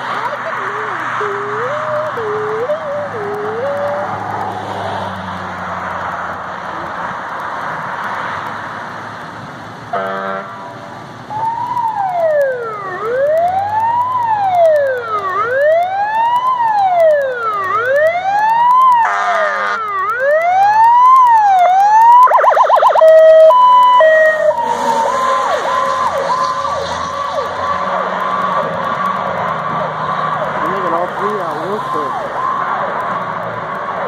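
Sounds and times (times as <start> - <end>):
fire engine siren wailing: 0.0 - 8.9, 9.9 - 34.0
short horn blasts: 9.9 - 10.6.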